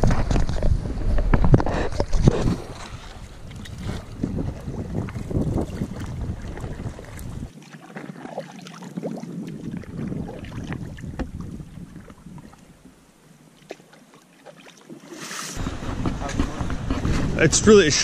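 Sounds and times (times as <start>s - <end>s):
wind rumbling on microphone: 0.0s - 7.6s, 8.8s - 13.0s, 15.6s - 18.0s
paddle splashing through water: 0.0s - 12.9s, 13.5s - 18.0s.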